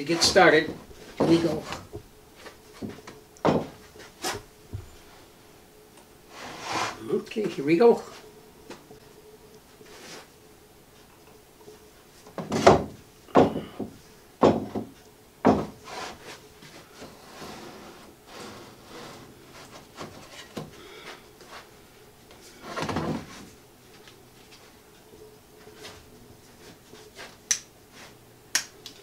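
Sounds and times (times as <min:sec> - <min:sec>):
wooden sled knocking and scraping: 0:00.1 - 0:02.0.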